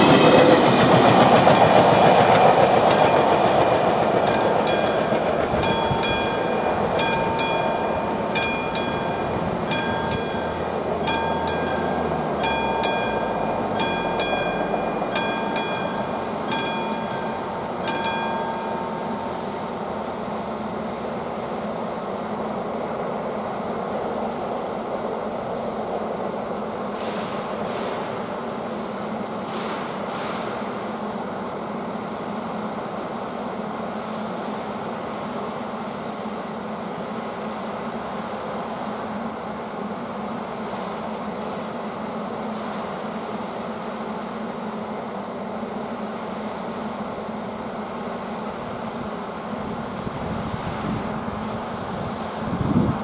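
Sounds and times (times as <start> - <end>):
level crossing warning bell: 0.0 - 20.5
train wheels rumbling: 0.0 - 31.5.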